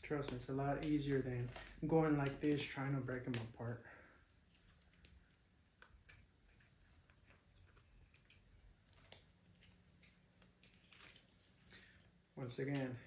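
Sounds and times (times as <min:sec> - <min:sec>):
plastic pieces clicking: 0:00.1 - 0:03.5.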